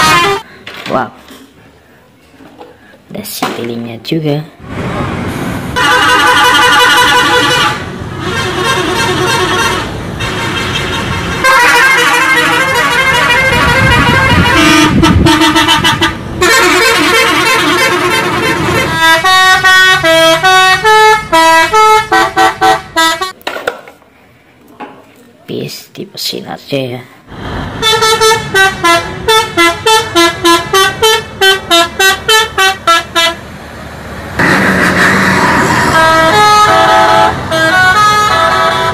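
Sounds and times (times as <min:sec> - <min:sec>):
multi-tone musical bus horns: 0:00.0 - 0:00.5, 0:05.7 - 0:23.4, 0:27.3 - 0:33.6, 0:34.4 - 0:38.9.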